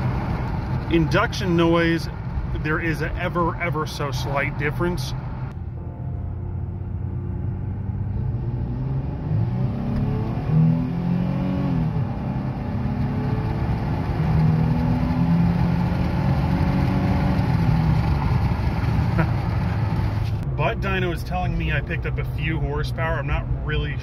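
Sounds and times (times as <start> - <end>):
engine accelerating hard: 6.8 - 20.4.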